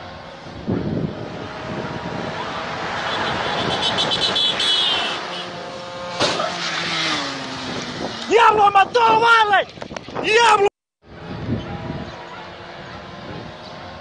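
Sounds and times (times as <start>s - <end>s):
vehicle driving past: 0.0s - 8.4s.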